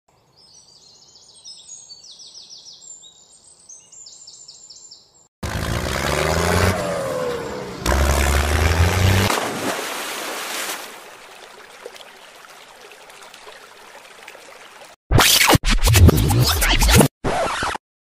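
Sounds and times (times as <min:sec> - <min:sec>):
loud engine: 0:05.4 - 0:09.3
birds chirping: 0:06.5 - 0:09.2.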